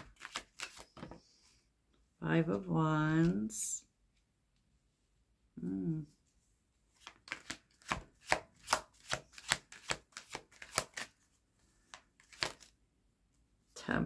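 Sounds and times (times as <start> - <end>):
cards being shuffled: 0.0 - 1.2, 6.9 - 12.8
person humming: 5.6 - 6.2.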